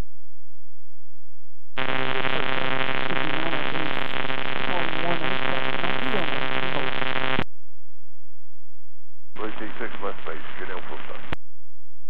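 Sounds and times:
radio buzzing drone: 1.8 - 7.4, 9.4 - 11.4
radio click: 1.8 - 7.4, 9.4 - 11.4
faint garbled voice: 9.4 - 11.4.

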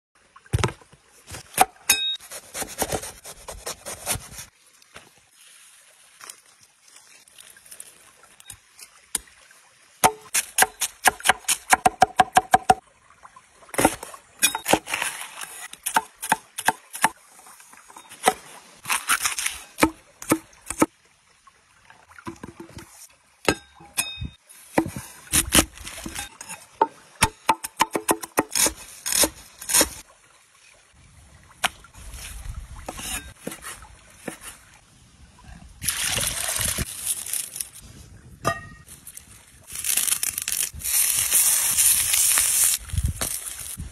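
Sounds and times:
cleaver chopping on wooden board: 10.0 - 12.8.

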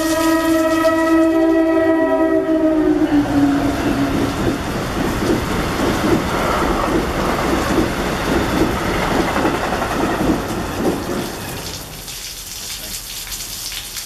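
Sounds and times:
train rushing past: 0.0 - 12.0
rain hissing: 0.0 - 14.0
wheels clattering on rail: 4.2 - 11.7.

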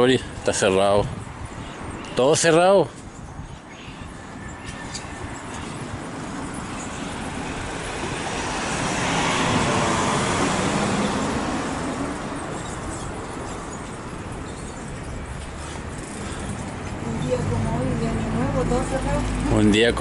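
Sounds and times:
vehicle passing by: 5.0 - 20.0.

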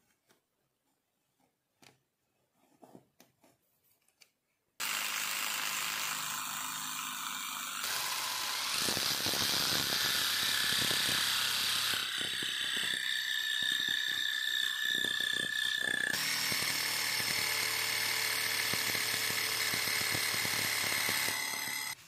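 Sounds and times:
reciprocating saw cutting wood: 4.8 - 22.0.

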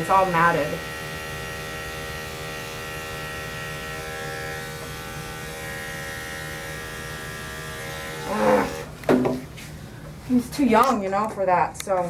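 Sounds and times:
electric clippers buzzing: 0.0 - 9.0.

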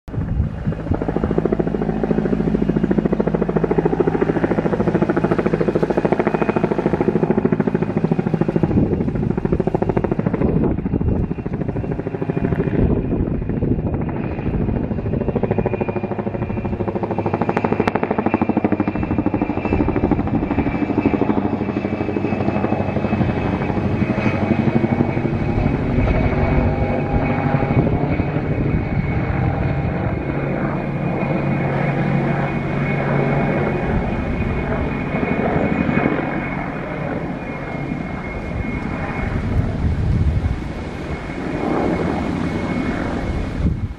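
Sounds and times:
helicopter rotor chopping: 0.1 - 43.9
turbine engine whine: 0.1 - 43.9.

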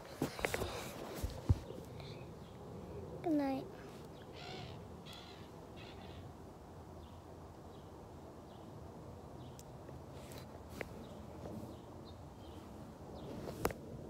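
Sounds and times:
camera rustling against fabric: 0.0 - 1.9, 13.2 - 13.9.

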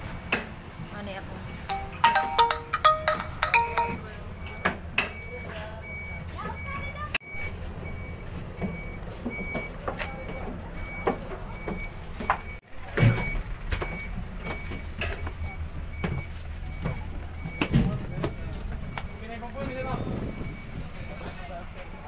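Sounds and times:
high electronic beeper: 1.7 - 4.2.

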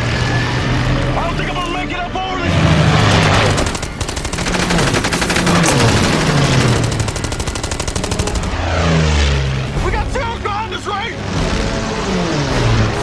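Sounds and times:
aircraft engines droning: 0.0 - 13.0
rapid machine-gun fire: 3.2 - 8.6.

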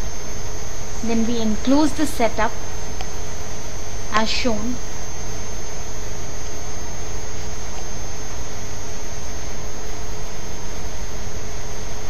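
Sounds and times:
constant hum: 0.0 - 12.0
thin high whine: 0.0 - 12.0.

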